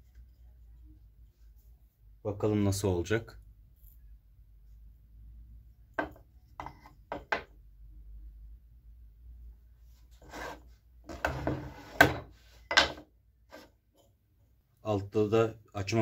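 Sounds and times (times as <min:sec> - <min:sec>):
wood knocking on a board: 0:06.0 - 0:07.5
wood rubbing and scraping: 0:10.1 - 0:14.1.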